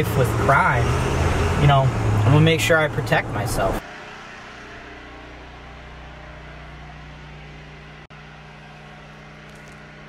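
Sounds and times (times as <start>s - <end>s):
steady low hum: 2.9s - 10.0s.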